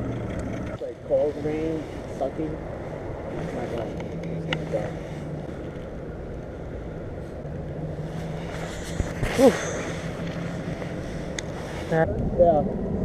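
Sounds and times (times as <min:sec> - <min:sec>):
distant outboard engine hum: 0:00.0 - 0:13.0
wind rumbling on microphone: 0:00.0 - 0:13.0.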